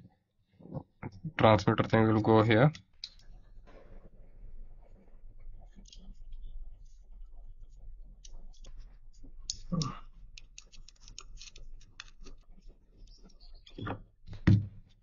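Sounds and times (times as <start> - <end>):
faint low hum: 0.6 - 15.0
plastic parts clicking by hand: 9.5 - 14.5.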